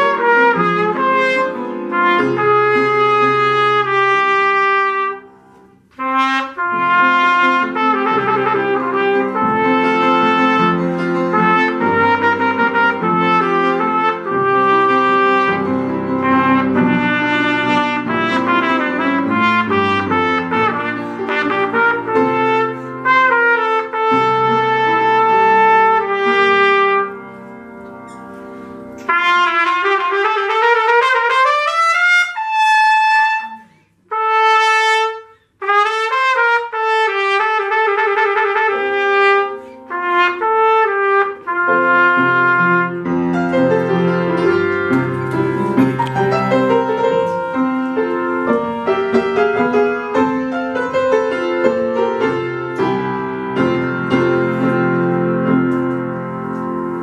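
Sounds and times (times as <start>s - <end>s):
piano chords: 0.0s - 31.7s, 32.4s - 57.0s
trumpet playing fast runs: 6.0s - 27.2s, 29.1s - 43.2s.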